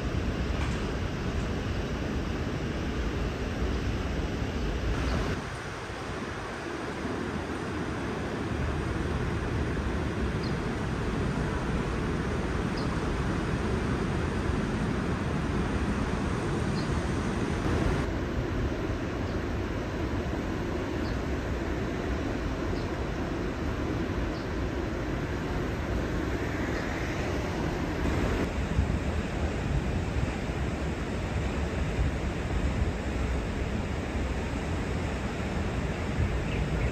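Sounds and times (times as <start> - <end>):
low city rumble: 0.0 - 36.9.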